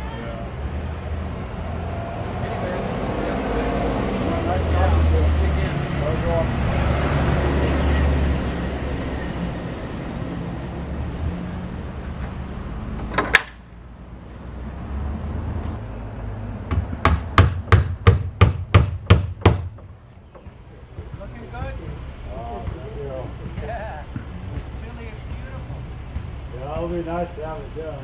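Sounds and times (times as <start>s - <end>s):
street noise: 0.0s - 28.0s
hammer striking wood: 16.7s - 21.2s.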